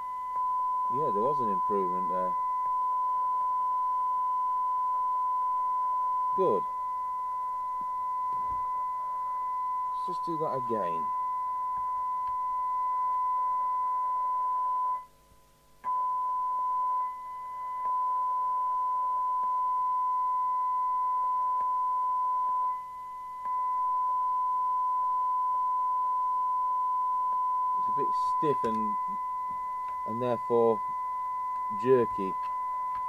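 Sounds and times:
steady test tone from speaker: 0.0 - 33.0.

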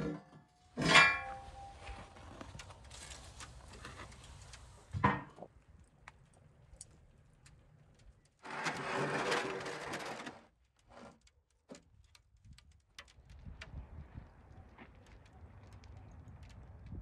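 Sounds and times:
metal tray scraping on stone: 8.4 - 10.4.

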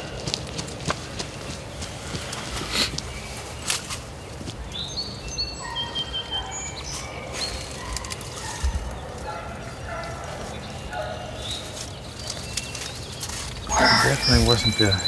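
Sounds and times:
songbird whistling: 13.6 - 15.0.

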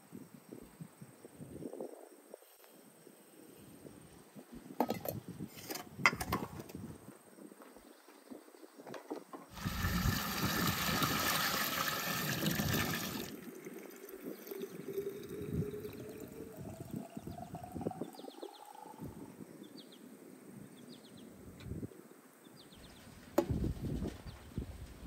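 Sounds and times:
water filling glass bottle: 9.5 - 19.2.

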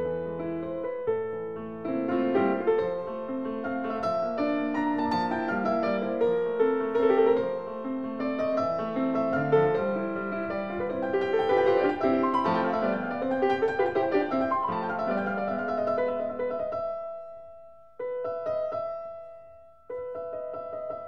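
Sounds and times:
piano music: 0.0 - 21.0.

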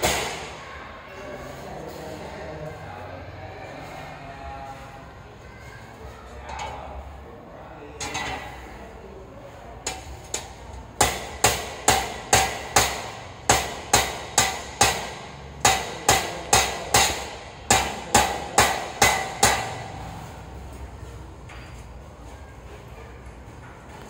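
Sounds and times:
hammer blows ringing: 9.9 - 20.1.

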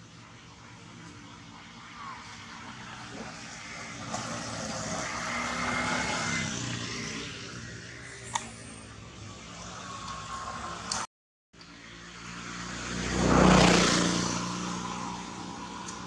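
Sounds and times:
motorbike passing by: 0.0 - 11.1, 11.7 - 16.0.

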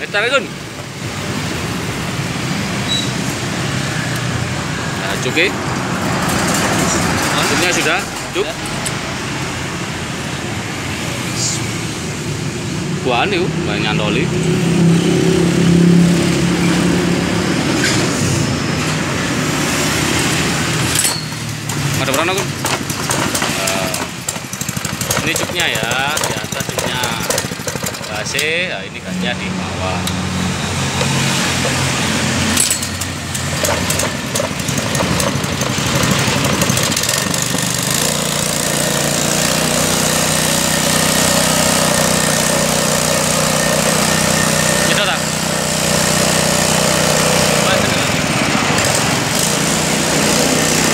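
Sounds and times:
water pump engine running: 19.5 - 28.7, 30.4 - 50.9.

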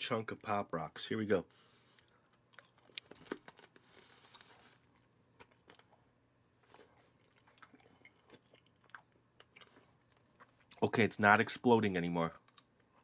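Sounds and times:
chewing mouth sounds: 6.6 - 10.8.

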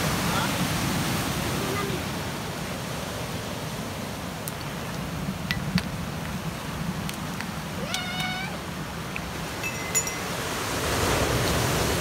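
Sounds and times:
surf washing over cobble beach: 0.0 - 12.0.

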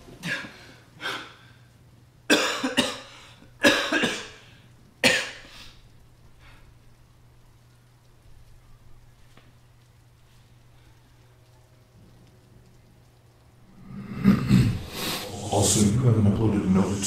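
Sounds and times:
man coughing hard: 2.3 - 4.4, 5.0 - 5.5.

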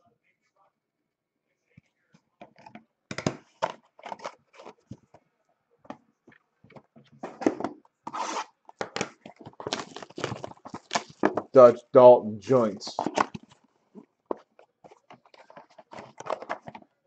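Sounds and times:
cardboard boxes rustling and scraping: 7.3 - 8.6, 14.3 - 16.9.

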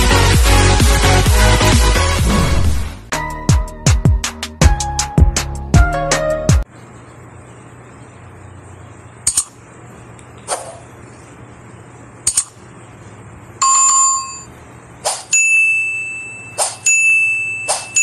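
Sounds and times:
ringing ding: 13.6 - 14.5, 15.3 - 18.0.

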